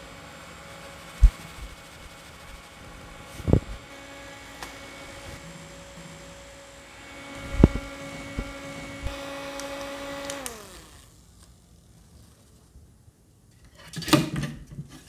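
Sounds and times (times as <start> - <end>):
desk fan motor hum: 0.0 - 11.8.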